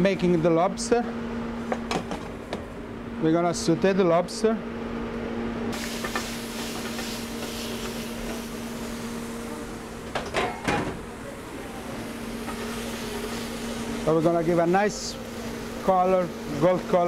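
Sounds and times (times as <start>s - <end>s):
steady low hum: 0.0s - 17.0s
lobster sizzling in a pan: 5.8s - 9.7s, 11.4s - 16.7s.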